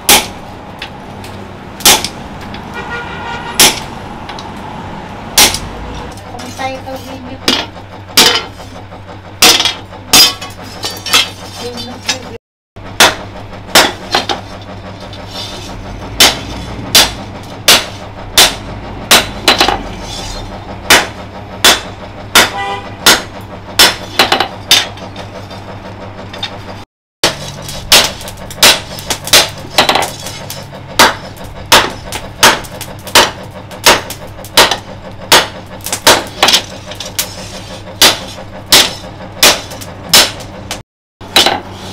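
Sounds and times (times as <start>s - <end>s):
hammer striking metal on anvil: 0.0s - 0.9s, 1.8s - 2.6s, 3.6s - 3.9s, 5.4s - 5.7s, 9.4s - 11.3s, 13.0s - 14.4s, 16.2s - 25.0s, 27.2s - 37.0s, 38.0s - 41.7s.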